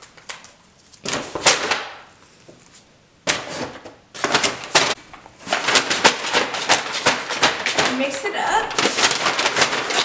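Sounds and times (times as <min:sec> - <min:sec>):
paper bag crinkling and rustling: 0:02.7 - 0:10.0
plastic tubs shifting in bag: 0:03.3 - 0:10.0.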